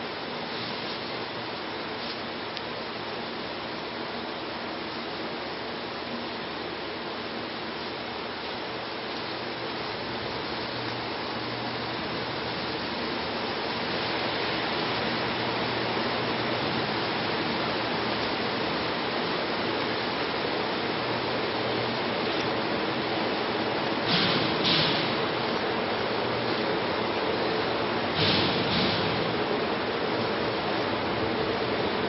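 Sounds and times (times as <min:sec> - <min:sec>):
freight train wheels rumbling: 0:09.2 - 0:32.0.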